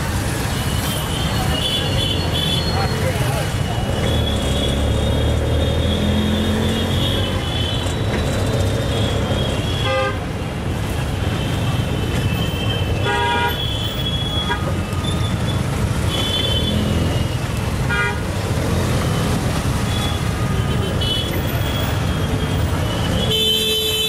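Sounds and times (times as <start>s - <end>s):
auto-rickshaw engine drone: 0.0s - 12.4s, 13.0s - 23.9s
street traffic: 0.0s - 24.0s
horns tooting: 11.9s - 24.0s.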